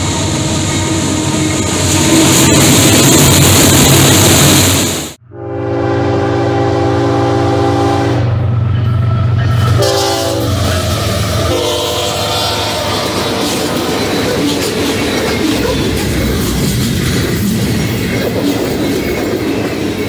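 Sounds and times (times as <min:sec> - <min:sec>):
locomotive engines rumbling: 0:00.0 - 0:20.0
train air horn: 0:05.2 - 0:13.4.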